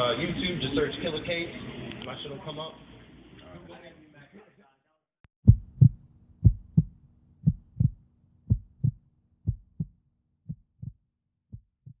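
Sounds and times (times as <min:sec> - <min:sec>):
heartbeat thumps: 0:05.4 - 0:12.0.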